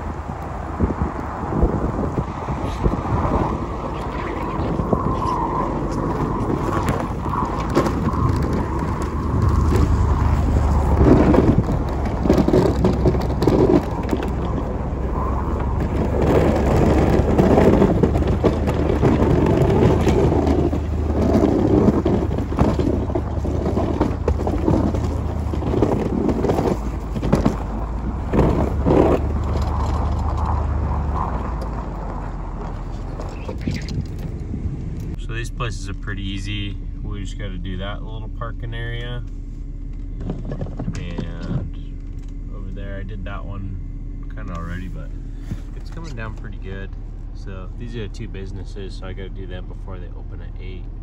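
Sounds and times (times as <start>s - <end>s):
plow blade scraping snow: 0.0s - 37.9s, 44.3s - 46.8s
vehicle engine running: 0.0s - 51.0s.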